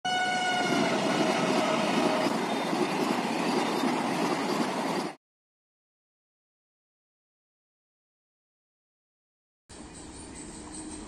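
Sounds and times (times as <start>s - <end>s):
train horn: 0.0s - 2.3s
train rushing past: 0.1s - 5.2s.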